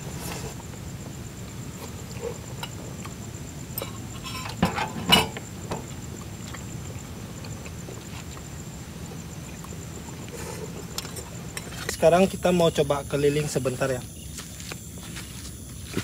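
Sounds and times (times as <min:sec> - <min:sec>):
cutlery scraping on metal plates: 0:03.8 - 0:05.4
loud cutlery clinks: 0:03.8 - 0:05.4.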